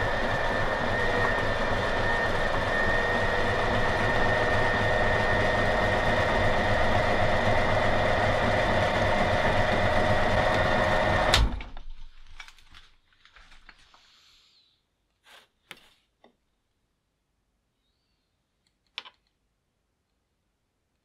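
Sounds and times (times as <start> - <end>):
meat grinder motor whining: 0.0 - 11.5.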